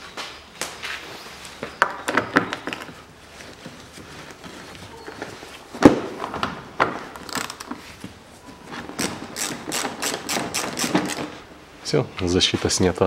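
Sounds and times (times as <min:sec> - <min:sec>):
socket ratchet clicking: 0:09.0 - 0:11.3.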